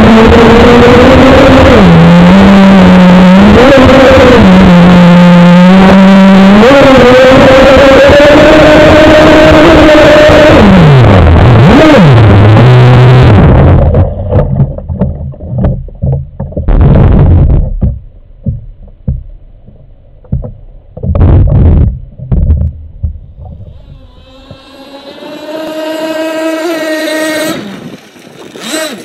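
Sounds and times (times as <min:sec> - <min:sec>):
high-pitched engine whine: 0:00.0 - 0:14.3, 0:23.5 - 0:27.8
nitro engine running in surges: 0:00.0 - 0:27.9, 0:28.5 - 0:29.0
water splashing against hull: 0:00.0 - 0:29.0.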